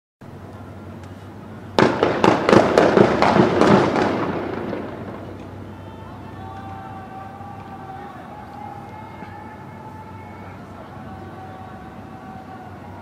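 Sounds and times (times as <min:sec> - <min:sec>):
rapid volley of sharp bangs: 0:01.8 - 0:05.4.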